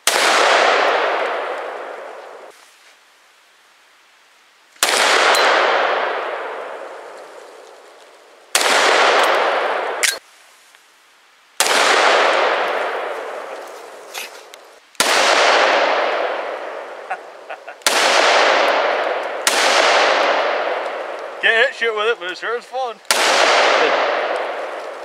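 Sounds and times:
pistol shots with echo: 0.0 - 2.1, 4.8 - 6.8, 8.5 - 10.2, 11.6 - 13.3, 15.0 - 16.9, 17.8 - 21.2, 23.1 - 24.7.

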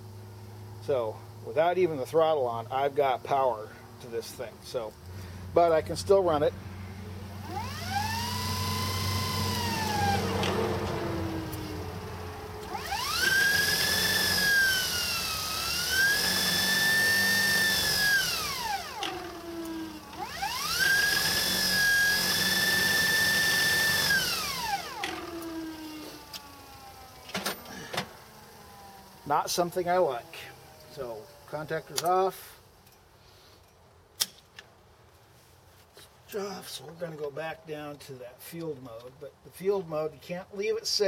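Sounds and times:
electric motor whine: 7.2 - 32.1.

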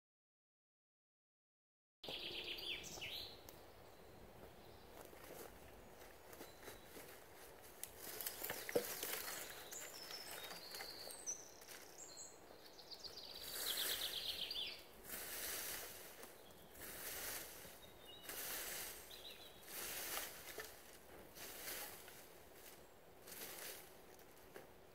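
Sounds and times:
birds singing: 2.0 - 20.4
footsteps in dry leaves: 4.4 - 12.3, 13.3 - 24.6
stick scraping ground: 15.0 - 23.9.

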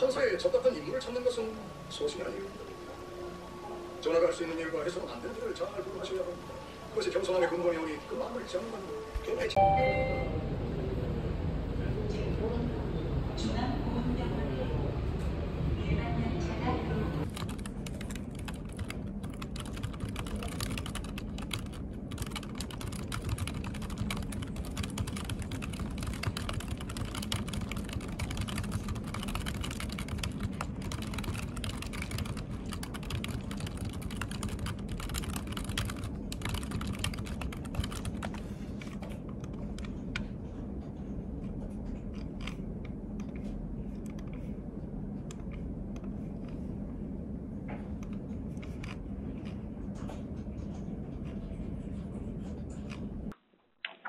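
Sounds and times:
low hum: 8.7 - 53.4
typing on keyboard: 17.2 - 39.9.

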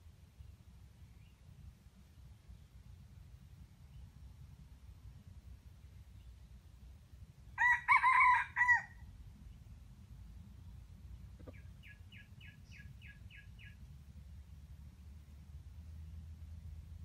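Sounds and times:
rooster crowing: 7.6 - 9.0.

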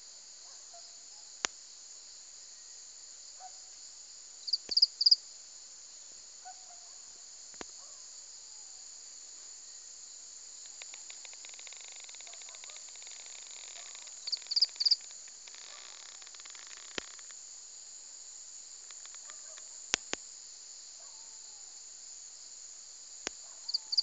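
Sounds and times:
insects chirping: 0.0 - 24.0
sharp clicks: 18.8 - 20.2.

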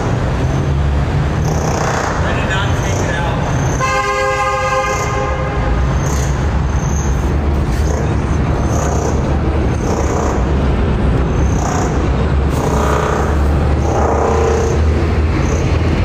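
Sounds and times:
low traffic-like rumble: 0.0 - 16.0.

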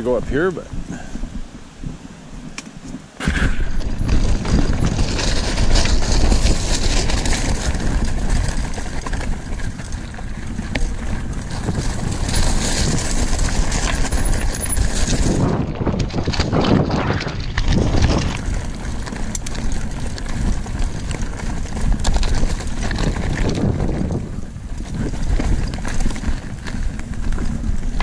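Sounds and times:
bike rattling over rough trail: 0.0 - 28.0
low rumble: 3.2 - 28.0.

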